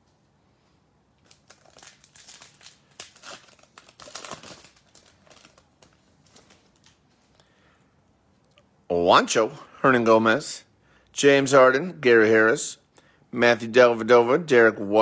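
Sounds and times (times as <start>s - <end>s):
plastic wrapper crinkling and tearing: 1.2s - 7.1s.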